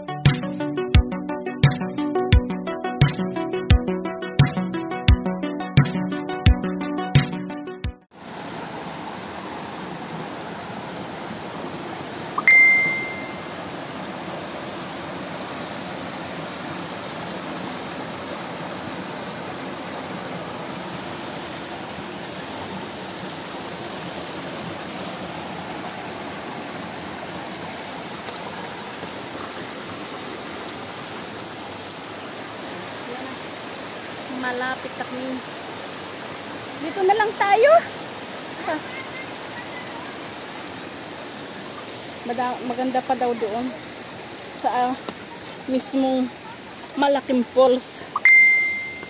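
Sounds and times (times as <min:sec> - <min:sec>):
water rushing over rocks: 0:08.2 - 0:49.0
short high beep: 0:12.4 - 0:13.5, 0:48.2 - 0:49.0.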